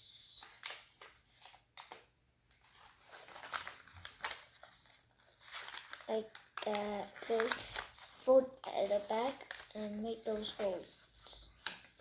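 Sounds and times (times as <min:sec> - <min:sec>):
paper rustling and crackling: 0:00.4 - 0:12.0.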